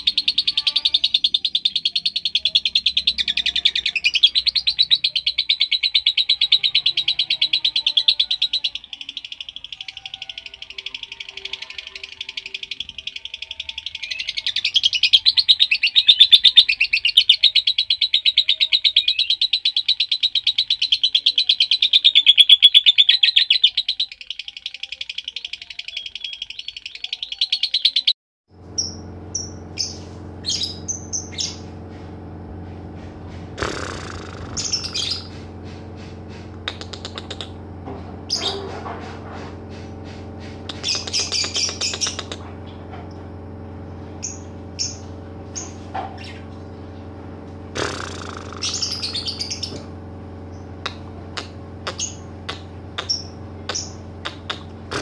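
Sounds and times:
steady low hum: 28.5 - 55.0
lovebird trilling: 33.6 - 35.4, 36.5 - 37.6, 40.6 - 42.4, 47.8 - 49.9.

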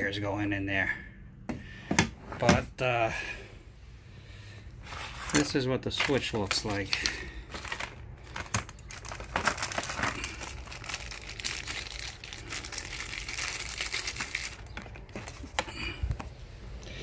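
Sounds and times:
plastic bags crinkling: 5.1 - 16.2
items clicking and knocking: 5.4 - 11.8, 13.7 - 16.4.

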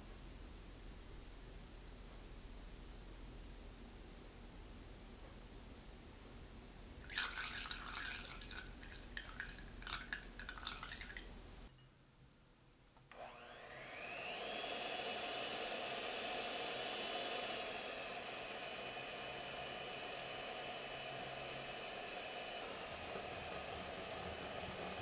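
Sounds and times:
electric hand mixer whining: 13.1 - 25.0.

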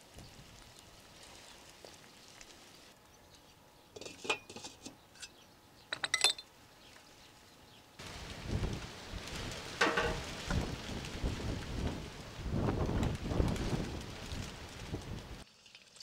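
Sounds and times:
metal lid clinking: 4.0 - 6.4
steady hiss: 8.0 - 15.4.

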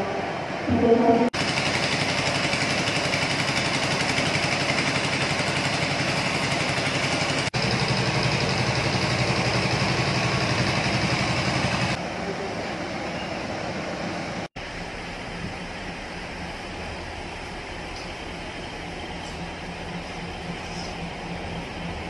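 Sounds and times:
pressure washer engine running: 1.4 - 12.0.

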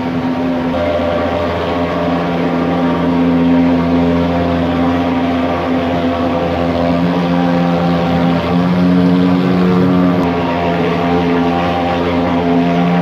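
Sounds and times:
pulse-jet fogger buzzing drone: 0.0 - 13.0.

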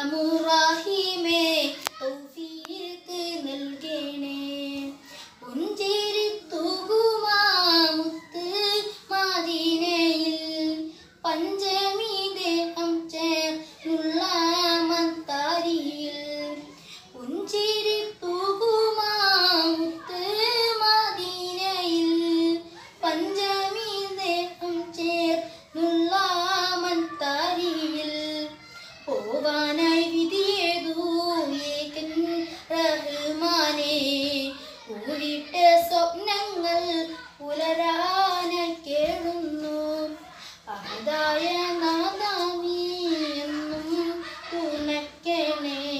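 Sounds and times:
boy singing unaccompanied: 0.0 - 45.9
breaths: 5.0 - 5.5, 16.7 - 17.2, 25.4 - 25.7, 28.6 - 29.1, 34.5 - 34.9, 40.2 - 40.7.

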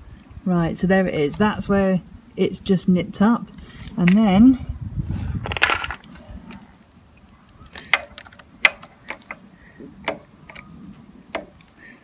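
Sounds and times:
sharp metal clicks: 7.6 - 9.4.

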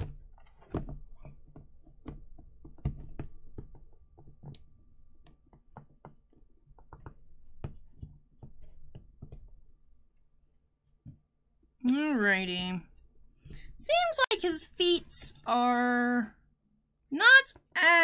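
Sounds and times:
statue clicking and knocking on base: 0.0 - 9.7.

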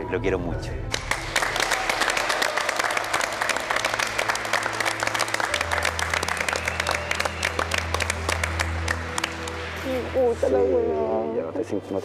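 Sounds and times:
background music: 0.0 - 12.0
group applauding: 0.9 - 10.2.

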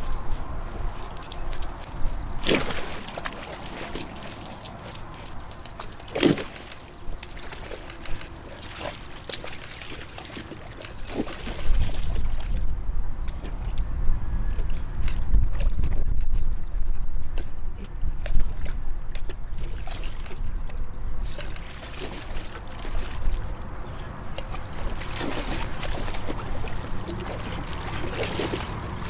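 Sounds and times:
dogs splashing in water: 0.0 - 12.6, 18.2 - 29.0
collar tags jingling: 0.0 - 12.9, 27.5 - 29.0.

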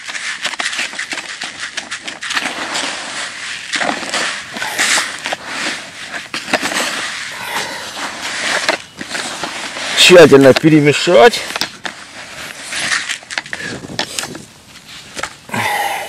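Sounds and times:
hands mixing crumbly soil: 0.0 - 16.0.

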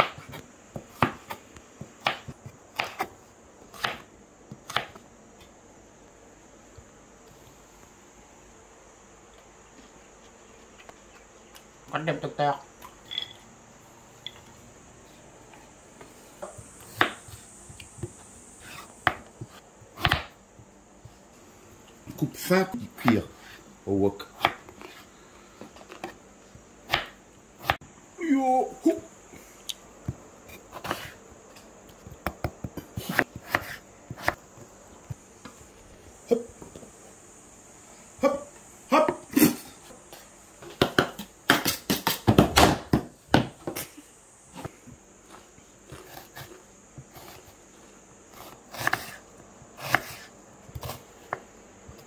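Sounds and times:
knife cutting on wooden board: 48.4 - 49.2, 49.8 - 51.0.

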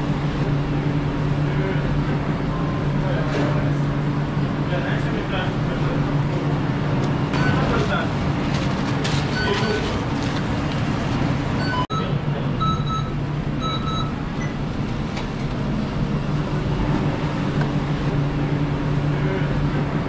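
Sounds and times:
hum of fans and cooking equipment: 0.0 - 20.0
kitchen timer beeps: 11.6 - 14.5.

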